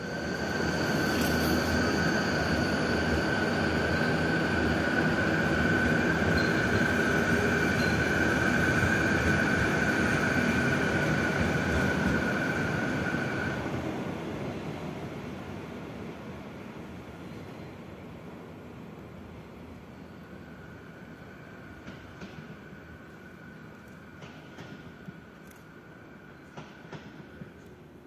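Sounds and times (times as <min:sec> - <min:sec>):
train high-pitched whine: 0:00.0 - 0:15.3, 0:19.6 - 0:27.8
train rumble: 0:00.0 - 0:17.6.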